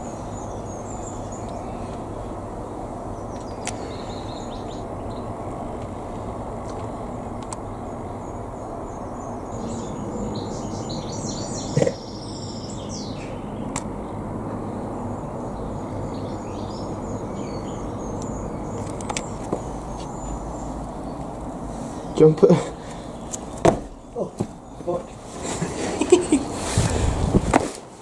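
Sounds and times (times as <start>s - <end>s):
small birds chirping: 0.0s - 27.2s
sharp knock: 23.6s - 24.5s.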